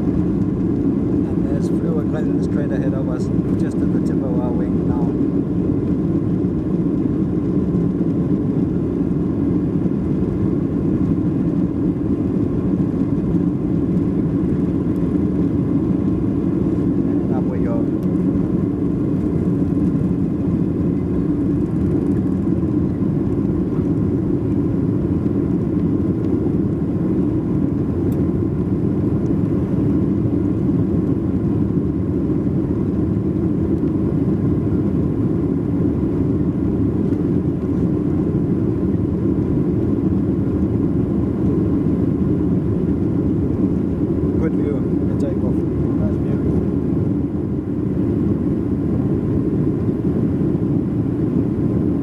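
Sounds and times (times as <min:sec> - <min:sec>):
jet engines at takeoff thrust: 0:00.0 - 0:52.0.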